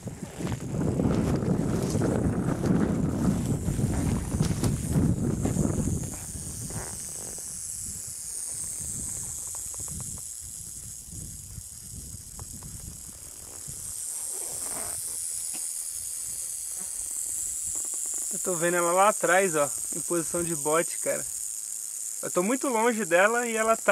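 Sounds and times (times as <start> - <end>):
wind and handling noise: 0.0 - 16.5
rattlesnake rattling: 0.0 - 23.9.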